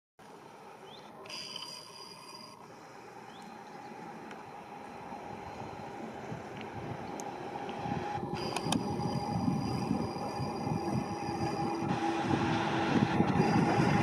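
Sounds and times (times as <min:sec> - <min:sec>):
steady high tone: 0:01.2 - 0:02.8, 0:03.6 - 0:14.0
train wheels rumbling on rail: 0:03.9 - 0:14.0.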